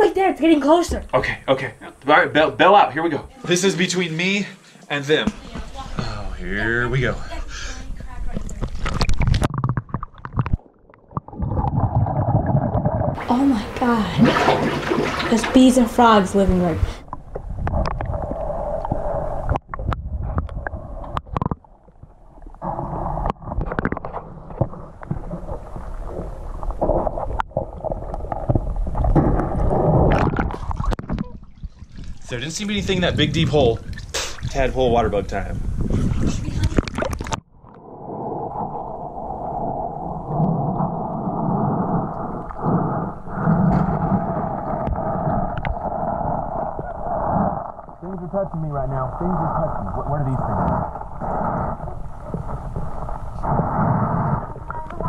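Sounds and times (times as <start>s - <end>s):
muffled underwater rumble: 5.8s - 55.0s.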